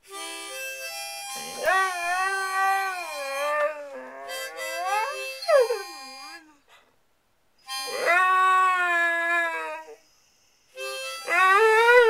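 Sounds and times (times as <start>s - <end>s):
harmonica notes: 0.0s - 6.6s, 7.6s - 8.6s, 9.8s - 12.0s
dog howling: 7.9s - 10.0s.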